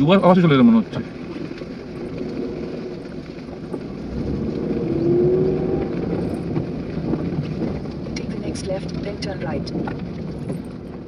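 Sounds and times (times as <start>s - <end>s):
car engine and tyre rumble: 0.0s - 11.0s.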